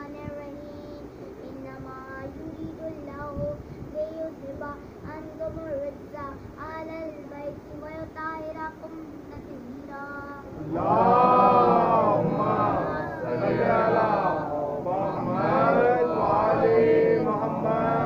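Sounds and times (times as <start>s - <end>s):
child singing softly: 0.0s - 10.6s, 11.7s - 14.2s.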